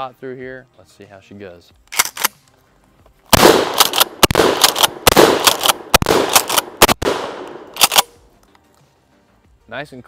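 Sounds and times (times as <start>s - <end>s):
shotgun pump racking clack: 1.9s - 2.6s, 3.7s - 8.6s
shotgun shots: 3.3s - 8.2s.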